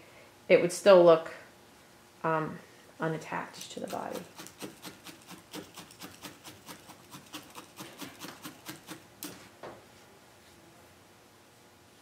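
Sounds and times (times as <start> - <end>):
felting needles stabbing wool: 3.8 - 9.4.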